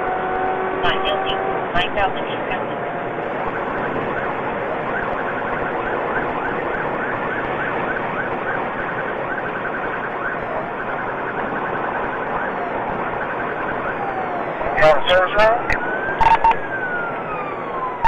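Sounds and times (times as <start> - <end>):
police siren chirping and warbling: 0.0 - 18.0
road and engine noise: 0.0 - 18.0.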